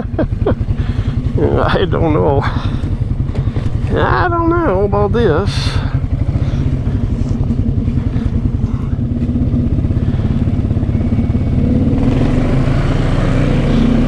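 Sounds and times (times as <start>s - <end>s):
atv engine revving: 0.0s - 14.0s.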